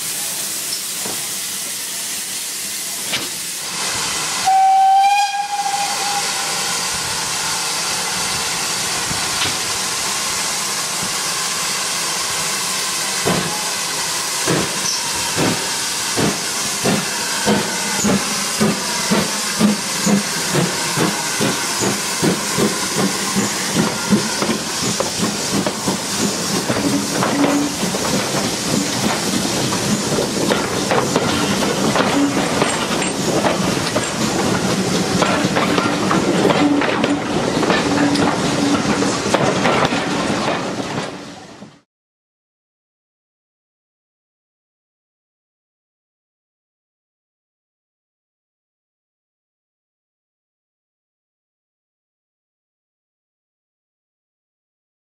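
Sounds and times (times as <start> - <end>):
steam hissing: 0.0 - 39.6
steam locomotive whistle: 4.3 - 7.0, 14.7 - 24.6.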